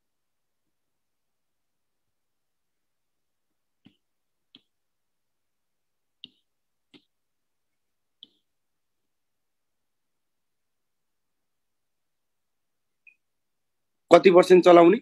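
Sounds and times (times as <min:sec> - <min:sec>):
stylus clicks on tablet: 0:03.8 - 0:04.8, 0:06.2 - 0:07.2, 0:08.2 - 0:08.5.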